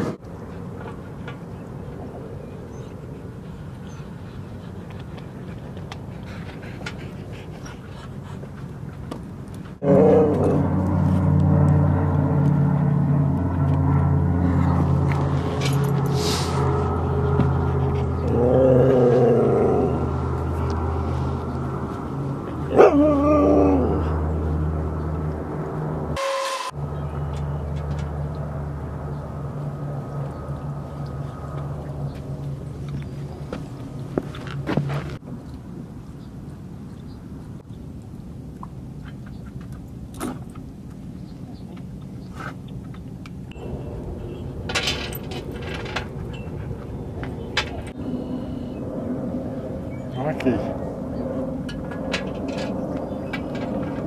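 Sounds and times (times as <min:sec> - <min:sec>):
low hum: 0:00.0 - 0:54.0
steady low rumble: 0:00.0 - 0:54.0
dog howling vocalizations: 0:09.8 - 0:10.8, 0:18.2 - 0:20.3, 0:22.7 - 0:24.3.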